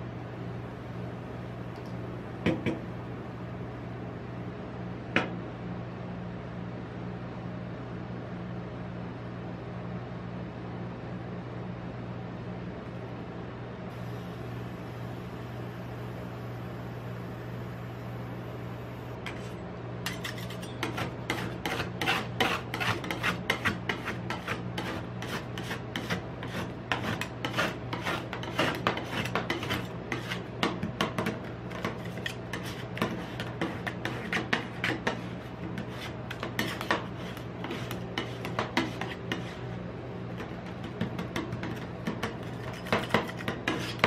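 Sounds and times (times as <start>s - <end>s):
steady low hum: 0.0s - 44.0s
metal spatulas tapping and scraping: 20.1s - 39.6s, 40.4s - 44.0s.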